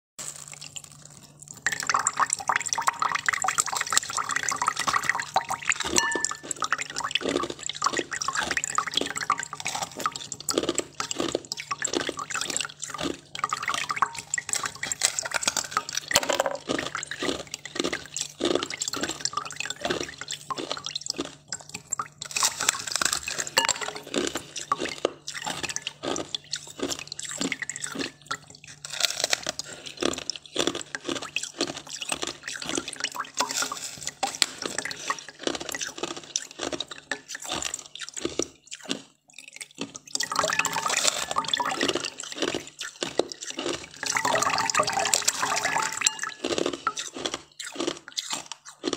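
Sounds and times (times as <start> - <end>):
meltwater dripping: 1.6 - 14.8
wet sucking and licking: 16.6 - 48.9.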